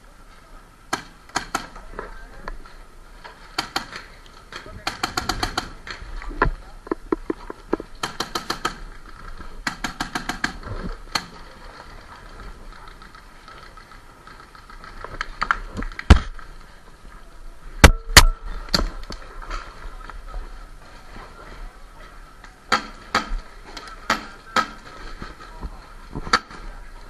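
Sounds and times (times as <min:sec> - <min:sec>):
paintball markers firing: 0:00.9 - 0:01.8, 0:03.5 - 0:06.0, 0:08.0 - 0:09.0, 0:09.6 - 0:11.5, 0:22.7 - 0:25.0.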